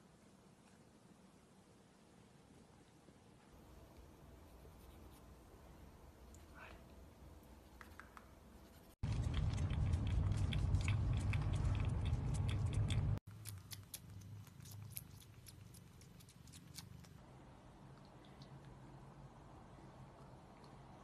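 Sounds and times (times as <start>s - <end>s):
wild cat sucking and nibbling: 7.4s - 17.2s
loud low rumble with clicks: 9.0s - 13.2s.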